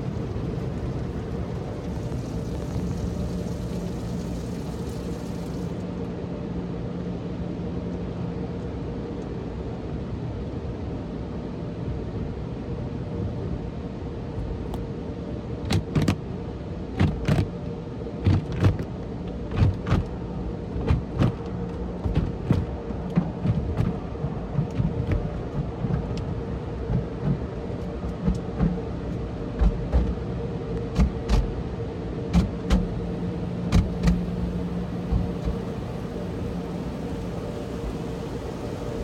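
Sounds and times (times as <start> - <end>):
machinery hum: 0.0 - 39.0
water spray rushing: 1.3 - 5.8, 32.9 - 39.0
wash brushes slapping car: 15.7 - 16.2, 16.9 - 17.5, 18.2 - 30.3, 30.9 - 31.6, 32.3 - 39.0.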